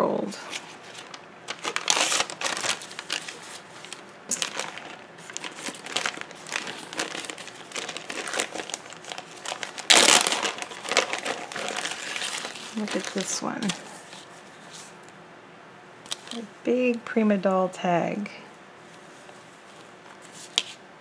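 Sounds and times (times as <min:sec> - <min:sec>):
plastic bag crinkling: 0:00.5 - 0:14.4.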